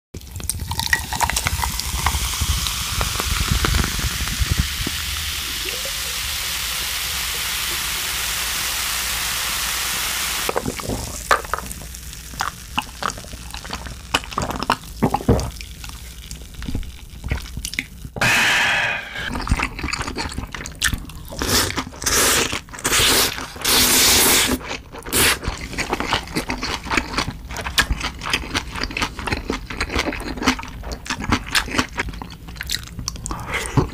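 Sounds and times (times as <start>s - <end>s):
chewing noodles: 19.4s - 33.9s
person sipping and slurping: 33.2s - 33.9s.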